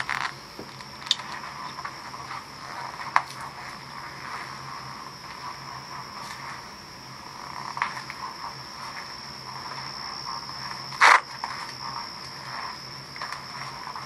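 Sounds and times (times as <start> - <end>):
insects trilling: 0.0 - 14.0
soft rustles and clicks: 7.4 - 14.0
loud sharp noise: 10.9 - 11.4.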